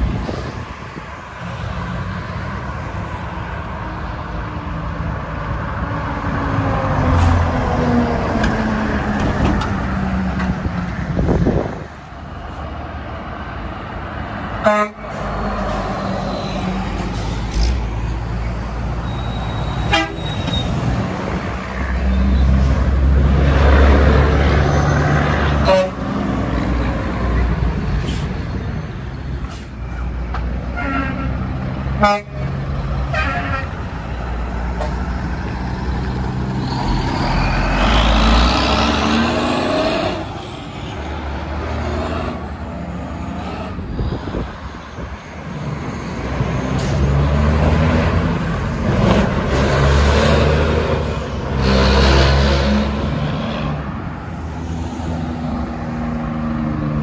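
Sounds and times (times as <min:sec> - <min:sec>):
trucks passing on highway: 0:00.0 - 0:57.0
air horn honks: 0:14.6 - 0:15.1, 0:19.9 - 0:20.3, 0:25.6 - 0:26.0, 0:32.0 - 0:32.5.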